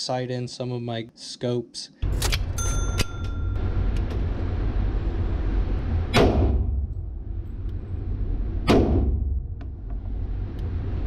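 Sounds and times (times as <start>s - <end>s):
steady low rumble: 3.3s - 11.0s.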